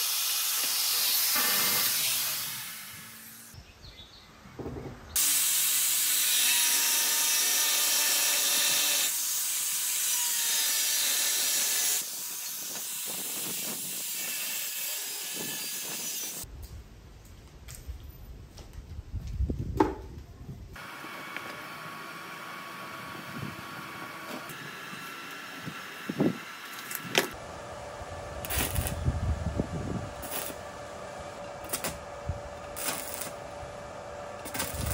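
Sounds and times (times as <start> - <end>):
angle grinder cutting steel: 0.0 - 3.6, 5.2 - 16.4, 28.4 - 29.0, 30.2 - 30.6, 32.7 - 33.4.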